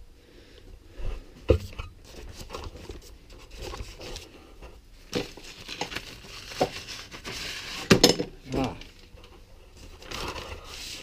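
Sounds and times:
paper bag crinkling: 5.1s - 7.9s, 9.8s - 11.0s.

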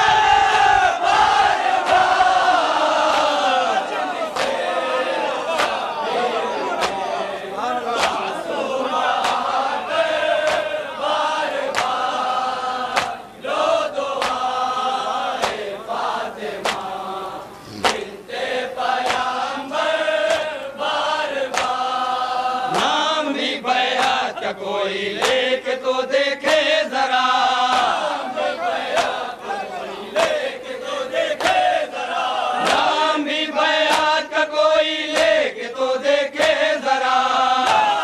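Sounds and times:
men chanting in unison: 0.0s - 38.0s
hands slapping chests: 4.3s - 4.6s, 5.5s - 5.8s, 6.8s - 7.1s, 8.0s - 8.3s, 9.2s - 9.5s, 10.4s - 10.7s, 11.7s - 12.0s, 12.9s - 13.2s, 14.2s - 14.5s, 15.4s - 15.7s, 16.6s - 16.9s, 17.7s - 18.1s, 19.0s - 19.3s, 21.5s - 21.8s, 25.2s - 25.5s, 27.7s - 28.0s, 28.9s - 29.2s, 33.8s - 34.2s, 35.1s - 35.4s, 36.4s - 36.7s, 37.6s - 38.0s.

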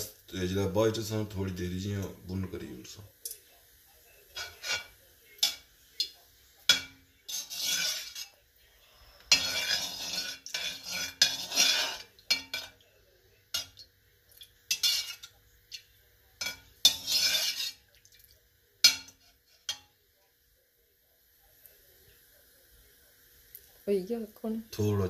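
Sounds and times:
metal spoon scraping steel pan: 4.3s - 5.7s, 6.6s - 8.4s, 9.2s - 12.8s, 14.7s - 15.3s, 16.4s - 17.8s.

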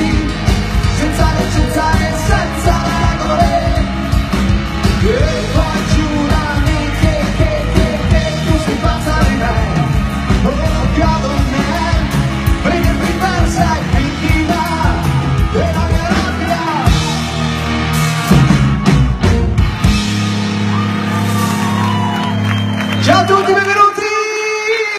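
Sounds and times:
man singing: 0.0s - 17.3s
live rock band playing: 0.0s - 24.9s.

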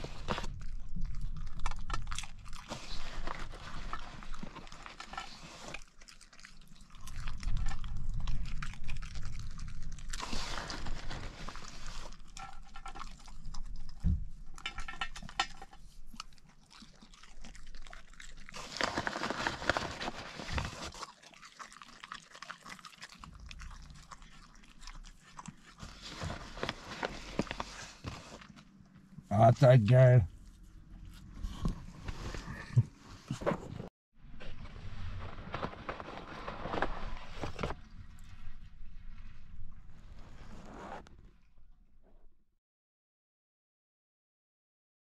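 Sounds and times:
dog chewing and crunching chips: 0.0s - 29.3s.

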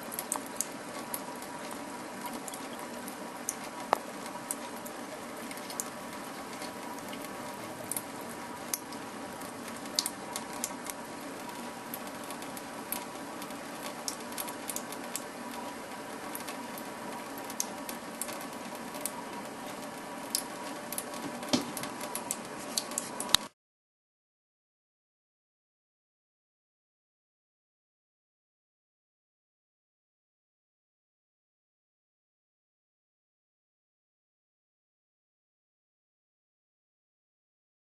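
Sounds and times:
faucet running into steel sink: 0.0s - 11.1s, 18.9s - 23.5s
small ticks and splashes: 0.0s - 15.6s, 16.3s - 23.5s.

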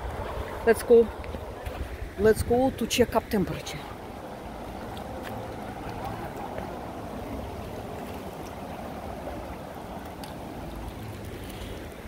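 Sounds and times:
water rushing over rapids: 0.0s - 12.0s.

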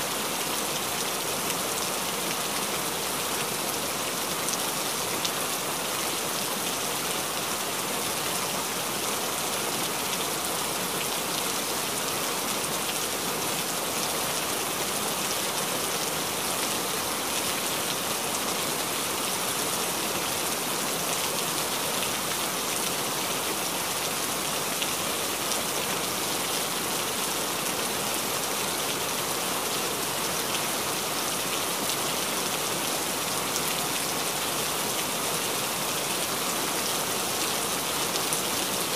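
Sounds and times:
steady rain-like hiss: 0.0s - 38.9s.

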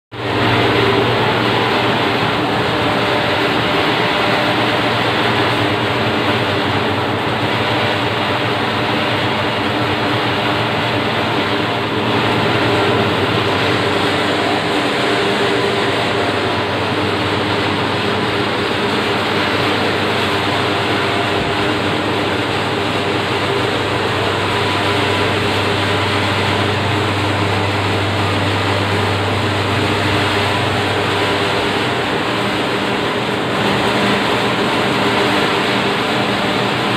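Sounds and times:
machinery droning: 0.1s - 36.9s
low hum: 0.2s - 36.9s.

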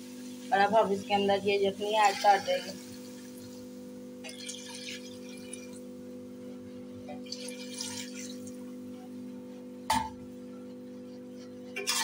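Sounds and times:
stock splashing and bubbling in pot: 1.8s - 6.2s, 7.1s - 9.0s, 11.7s - 12.0s.

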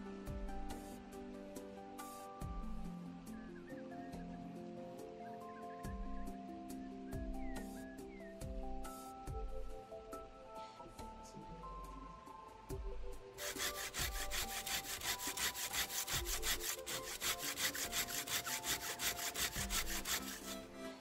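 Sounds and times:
background music: 0.0s - 21.0s
hand saw cutting wood: 13.4s - 21.0s.

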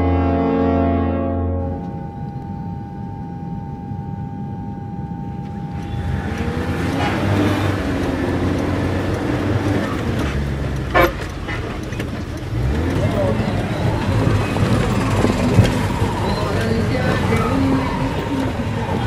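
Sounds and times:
car horn toot: 0.0s - 2.3s, 10.8s - 11.3s
street traffic noise: 0.0s - 19.0s
held tone: 1.6s - 7.0s
car engine hum: 1.6s - 19.0s.

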